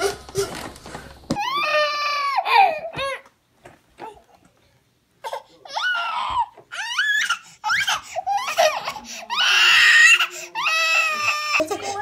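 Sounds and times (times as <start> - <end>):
toddler crying: 1.4 - 3.3, 5.4 - 12.0.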